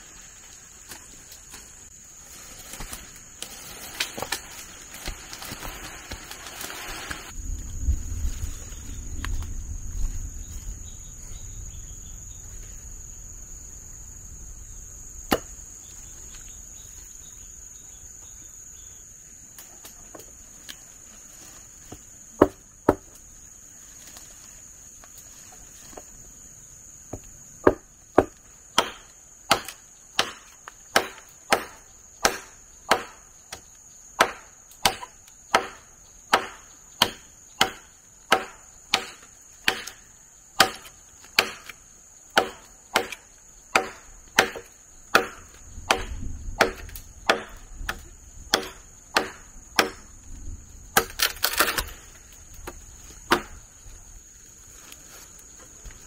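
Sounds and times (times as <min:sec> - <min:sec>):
chopping blows on wood: 0:27.1 - 0:33.6, 0:34.2 - 0:40.0, 0:40.6 - 0:41.8, 0:42.4 - 0:50.0, 0:52.6 - 0:53.6.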